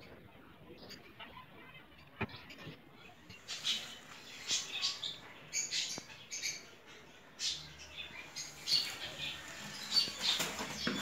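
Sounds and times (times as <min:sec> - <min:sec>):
birds chirping: 0:00.0 - 0:11.0
plastic knocks and rustles: 0:10.2 - 0:11.0.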